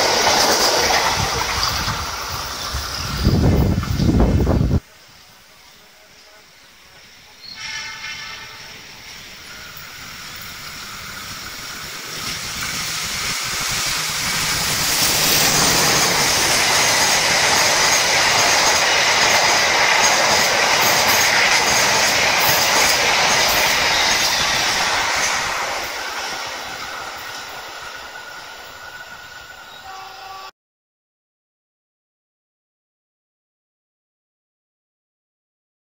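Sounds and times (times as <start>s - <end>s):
train wheels rumbling on rails: 0.0s - 5.0s, 5.9s - 30.5s
train horn blast: 7.4s - 9.0s, 29.8s - 30.5s.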